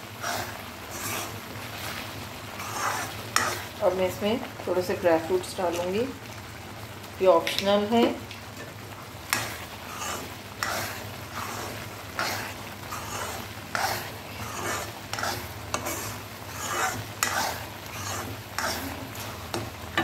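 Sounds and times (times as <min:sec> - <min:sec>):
light sizzle of fat: 0:00.0 - 0:20.0
metal spoon scraping a pan: 0:00.2 - 0:04.0, 0:09.3 - 0:20.0.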